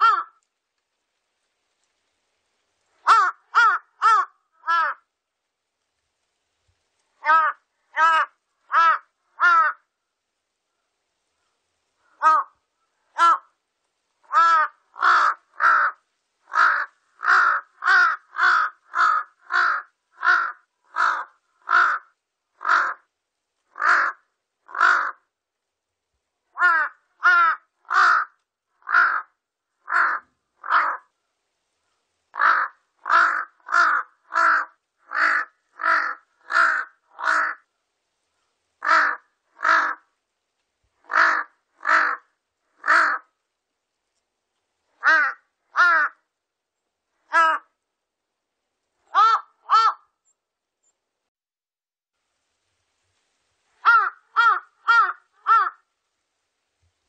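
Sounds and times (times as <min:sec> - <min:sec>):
crow cawing: 0:00.0 - 0:00.4, 0:03.0 - 0:05.1, 0:07.2 - 0:09.9, 0:12.0 - 0:13.6, 0:14.2 - 0:23.1, 0:23.7 - 0:25.3, 0:26.5 - 0:31.1, 0:32.3 - 0:37.7, 0:38.8 - 0:40.1, 0:41.0 - 0:43.4, 0:45.0 - 0:46.3, 0:47.2 - 0:47.8, 0:49.1 - 0:50.2, 0:53.8 - 0:55.9.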